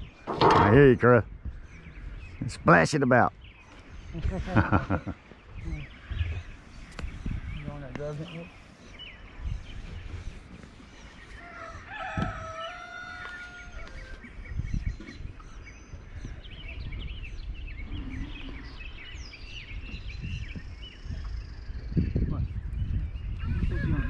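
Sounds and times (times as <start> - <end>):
small birds chirping: 0.0 - 24.0
wind rumble on microphone: 0.0 - 24.0
rooster crowing: 11.4 - 14.1.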